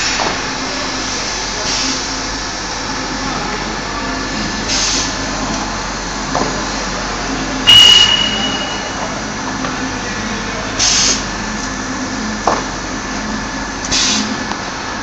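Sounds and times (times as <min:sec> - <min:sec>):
loud burst with high tone: 0:07.7 - 0:09.2.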